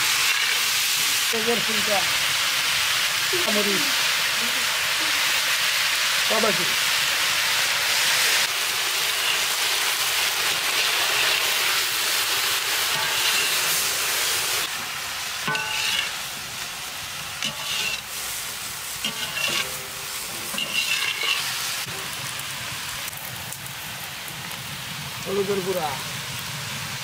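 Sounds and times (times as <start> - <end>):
peppers sizzling in oil: 0.0 - 27.0
stirring scrapes against pan: 12.9 - 13.8, 15.5 - 16.2, 17.4 - 18.2, 19.0 - 21.6.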